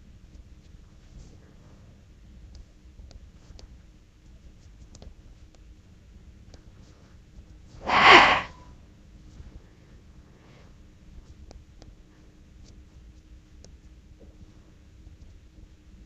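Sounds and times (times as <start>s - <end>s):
short burst of breath: 7.9s - 8.6s.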